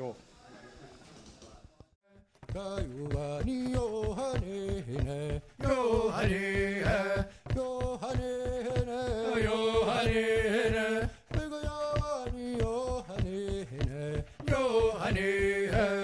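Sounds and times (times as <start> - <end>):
fast drum beat: 2.4 - 16.0
chanted singing: 9.1 - 11.1, 14.5 - 16.0.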